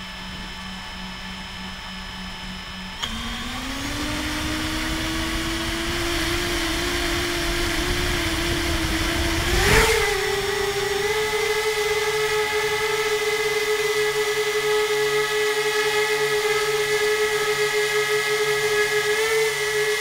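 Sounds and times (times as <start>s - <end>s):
drone motors whining: 0.0s - 20.0s
click: 3.0s - 3.3s
wind on microphone: 3.1s - 13.9s.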